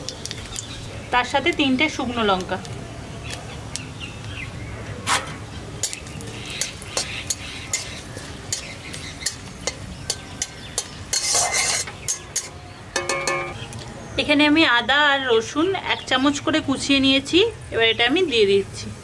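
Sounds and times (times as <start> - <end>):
metal spatula scraping pan: 5.1 - 13.6
spices sizzling in hot oil: 5.4 - 13.6.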